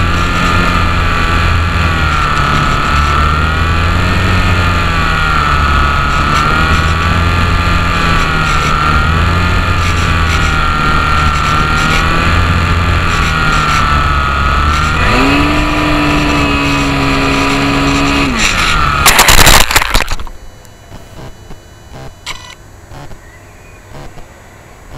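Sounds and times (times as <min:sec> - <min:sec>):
electric motor and propeller whining: 0:00.0 - 0:23.3
plane crashing on asphalt: 0:16.5 - 0:20.3.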